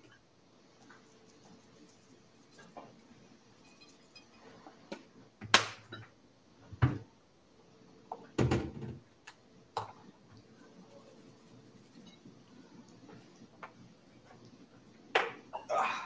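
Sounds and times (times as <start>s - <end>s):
kitchen items knocking on counter: 8.4s - 9.0s.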